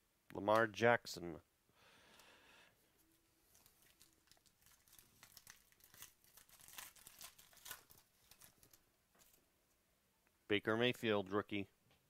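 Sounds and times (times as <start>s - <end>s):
cards crackling: 3.5s - 9.4s
wrapper crinkling and tearing: 3.5s - 9.4s.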